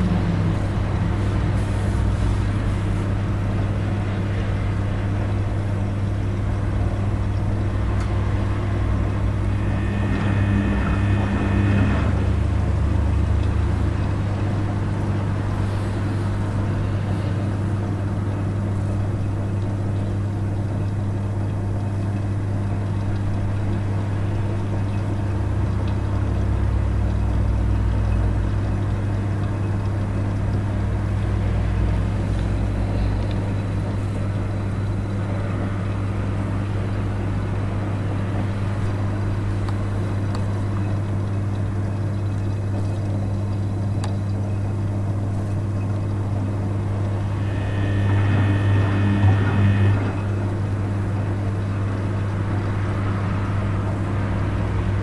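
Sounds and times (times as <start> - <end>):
deeper rumble: 0.0 - 5.5, 6.4 - 19.5, 44.9 - 55.0
brief higher whine: 8.4 - 13.7, 46.1 - 52.0.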